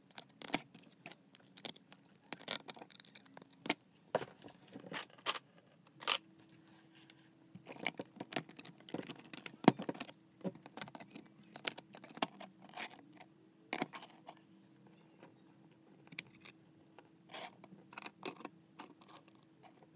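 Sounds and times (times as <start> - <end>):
plastic bricks clicking and snapping: 0.1 - 3.8.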